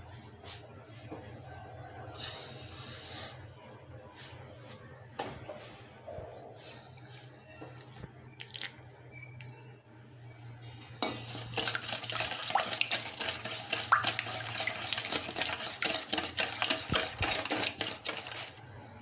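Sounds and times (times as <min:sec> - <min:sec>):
liquid sloshing: 0:08.4 - 0:08.9, 0:11.2 - 0:18.6
whisk clinking against metal bowl: 0:11.0 - 0:18.6.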